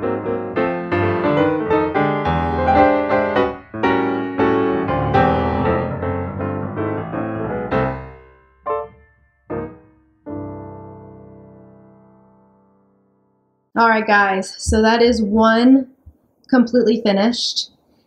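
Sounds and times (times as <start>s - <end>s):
piano music: 0.0s - 13.7s.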